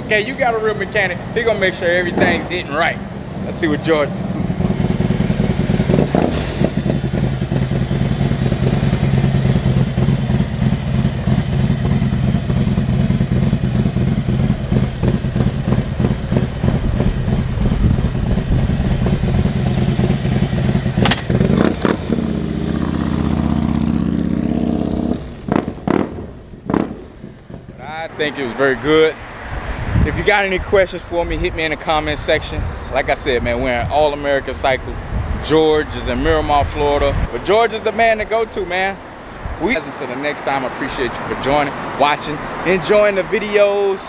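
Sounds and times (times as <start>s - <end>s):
motorcycle engine running: 4.2s - 27.9s
motorcycle throttle blips: 4.2s - 27.9s.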